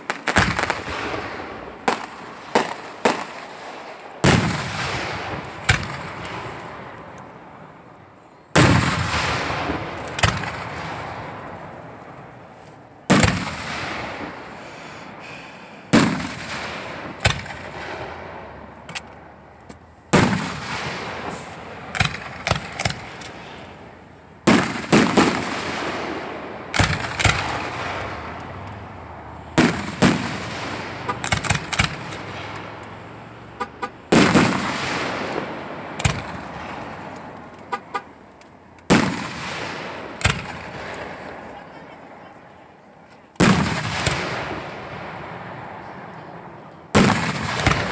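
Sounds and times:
small firework pops: 0.1 - 1.2, 1.9 - 7.3, 18.8 - 23.4, 38.4 - 41.4
rumbling echo: 4.2 - 7.9, 13.0 - 19.5, 20.1 - 37.5, 38.9 - 41.9
firework shells bursting: 8.6 - 12.4, 13.0 - 41.4, 46.9 - 47.9.

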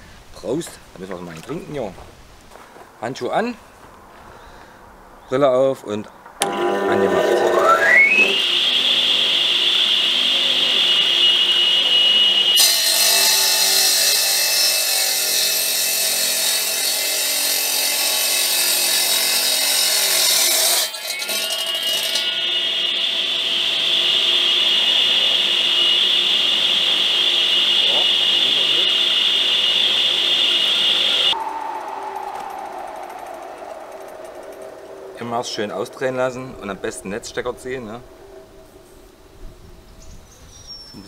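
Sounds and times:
saw grinding through stone: 6.4 - 31.4
electric saw whine: 6.4 - 39.6.

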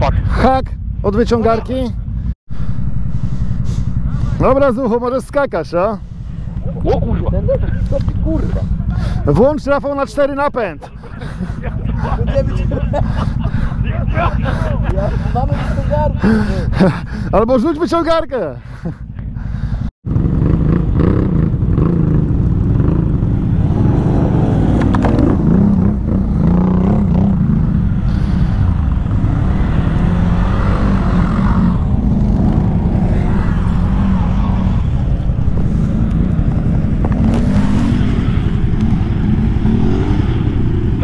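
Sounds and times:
quad bike engines running: 0.0 - 41.0.

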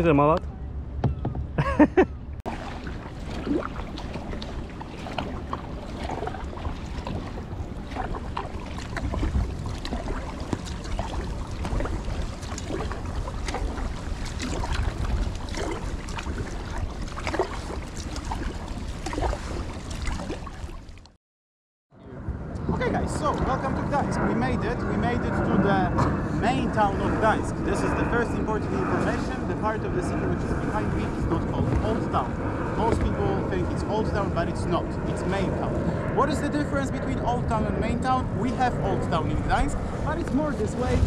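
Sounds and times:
wind buffeting microphone: 0.4 - 20.8, 22.0 - 41.0
paddle splashing through water: 2.5 - 21.1.

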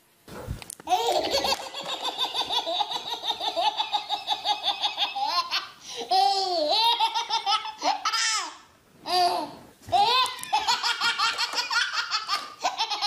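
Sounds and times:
baby belly-laughing: 9.9 - 13.0.

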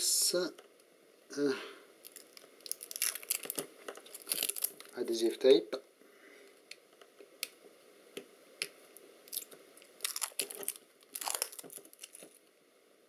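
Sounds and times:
adhesive tape peeling: 2.1 - 5.0, 9.3 - 12.4.

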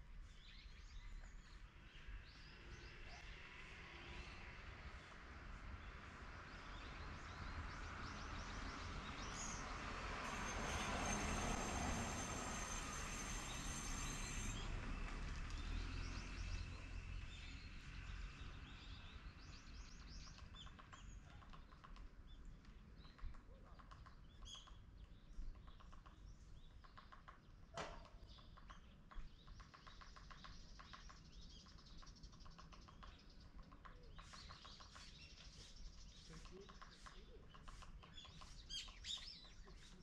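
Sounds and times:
small birds chirping: 15.9 - 40.0.

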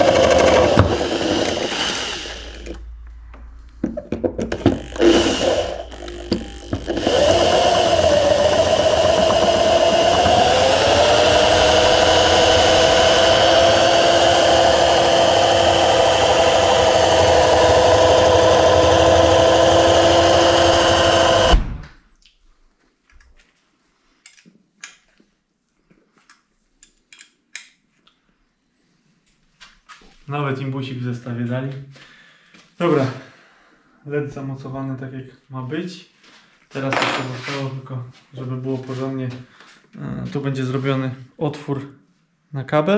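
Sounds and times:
electric drill boring metal: 0.0 - 2.8, 4.4 - 21.8.

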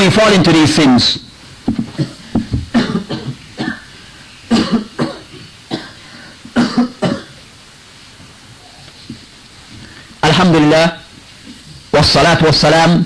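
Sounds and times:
person coughing: 1.8 - 3.9, 4.5 - 7.4
throat clearing: 1.8 - 3.9, 4.5 - 7.4.

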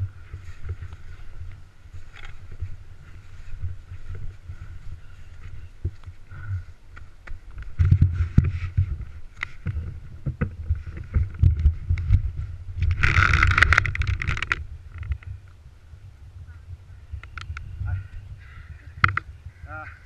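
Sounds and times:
snow crunching and scraping: 0.0 - 6.8, 7.4 - 14.0
thumps on camera microphone: 7.3 - 14.6.

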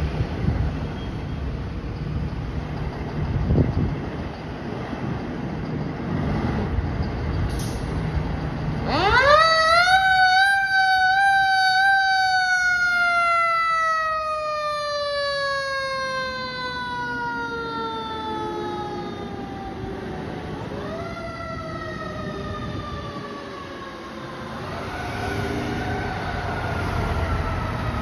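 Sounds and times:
fire truck siren: 8.6 - 28.0.

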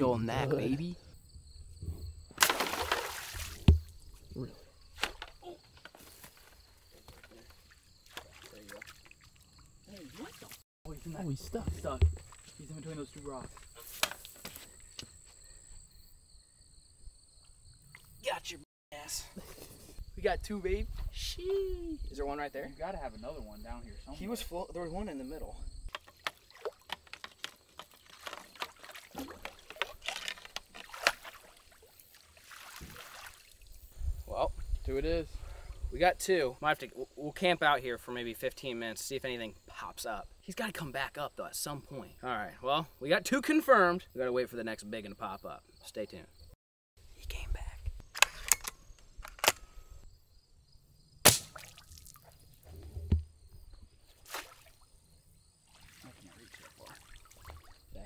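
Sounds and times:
dull thump: 1.8 - 4.0, 11.6 - 12.3, 52.7 - 53.7
net splashing in pond water: 2.4 - 4.0, 8.1 - 10.6, 26.0 - 26.9, 28.0 - 33.7, 51.3 - 52.4, 54.2 - 54.9, 55.6 - 57.8
rifle cocking clicks: 48.1 - 49.7
sharp hit: 51.2 - 51.6
pellet rifle shot: 51.2 - 51.8.

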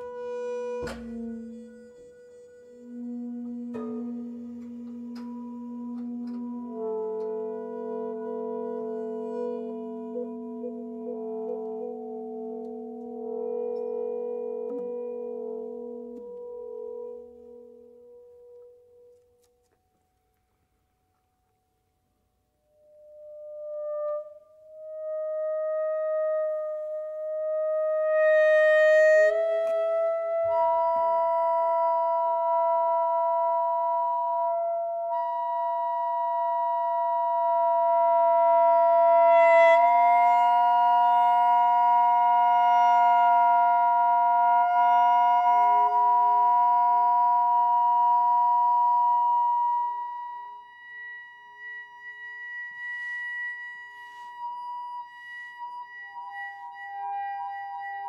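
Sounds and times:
saxophone tuba and piano drones: 2.8 - 18.3.

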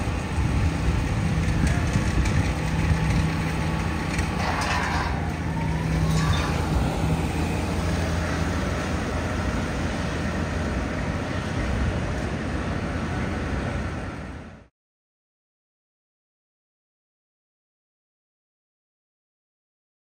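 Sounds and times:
city street traffic: 0.0 - 14.7
suv engine hum: 0.0 - 14.7.

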